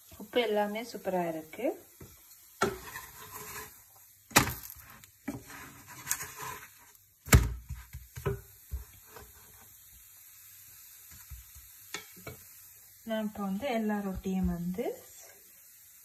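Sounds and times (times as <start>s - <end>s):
wooden spatula knocking on pan: 14.1s - 14.8s.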